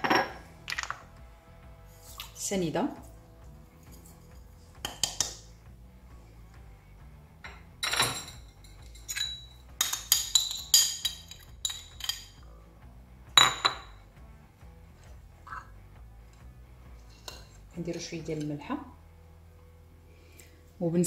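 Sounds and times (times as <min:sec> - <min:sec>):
bowl and spoon clinking on metal pot: 0:04.8 - 0:05.4, 0:07.4 - 0:12.4, 0:13.4 - 0:14.0.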